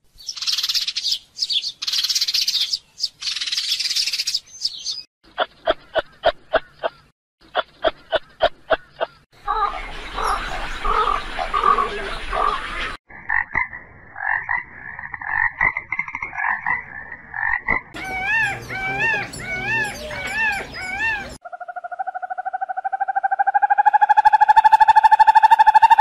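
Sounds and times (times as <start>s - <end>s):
rising and falling animal calls: 14.3s - 26.0s.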